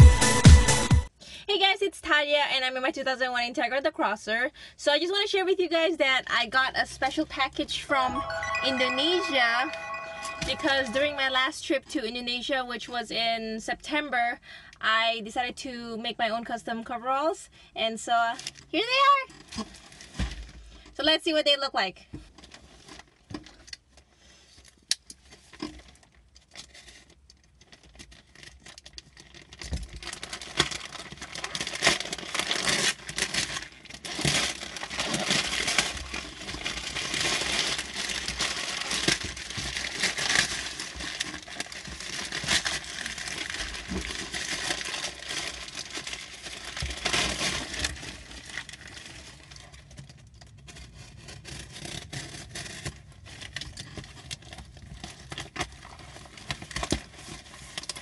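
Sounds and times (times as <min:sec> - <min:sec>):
packaging crinkling and tearing: 0:24.6 - 0:58.0.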